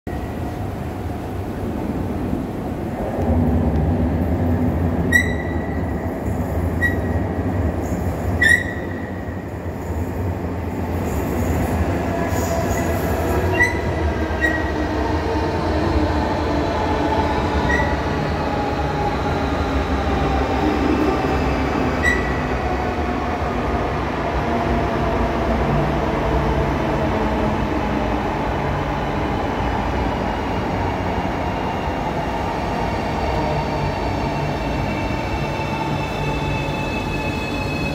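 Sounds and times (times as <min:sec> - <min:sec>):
train low rumble: 0:00.1 - 0:37.9
high wheel squeaks: 0:05.1 - 0:05.7, 0:06.8 - 0:07.2, 0:08.4 - 0:09.0, 0:13.5 - 0:14.7, 0:17.7 - 0:18.0, 0:22.0 - 0:22.4.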